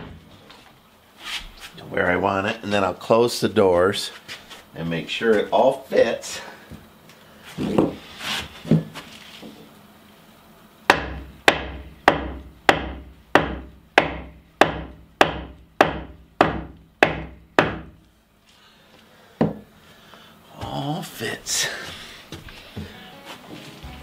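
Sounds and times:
hammer striking timber post: 0:10.9 - 0:18.0.

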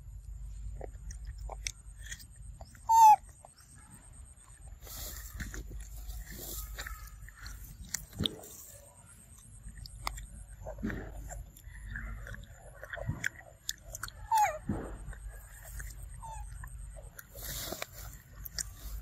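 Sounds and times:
monkey chewing fruit: 0:00.0 - 0:19.0
high-pitched animal call: 0:02.7 - 0:03.7, 0:14.0 - 0:14.8, 0:15.4 - 0:17.7.

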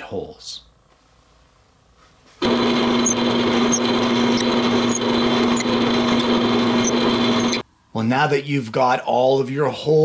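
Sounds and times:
drill press humming: 0:02.4 - 0:07.6.

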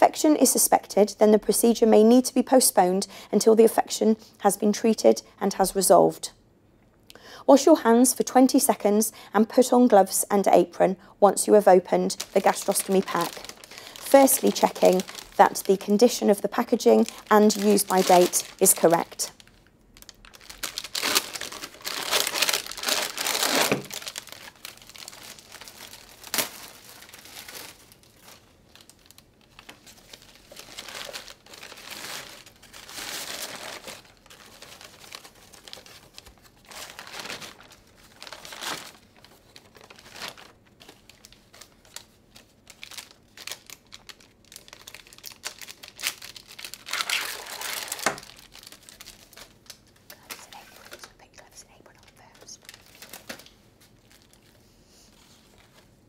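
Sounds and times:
plastic and paper crinkling: 0:11.3 - 0:56.0.

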